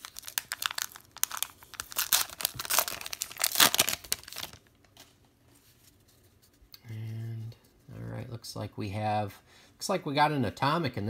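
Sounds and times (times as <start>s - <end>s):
foil wrapper tearing and crinkling: 0.0s - 4.7s.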